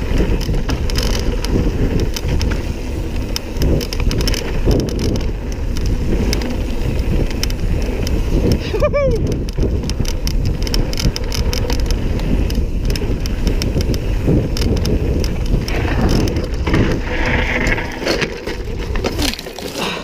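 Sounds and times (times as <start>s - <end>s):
bike clicking and rattling: 0.0s - 20.0s
wind buffeting microphone: 0.0s - 20.0s
tyres crunching on stones: 9.6s - 20.0s.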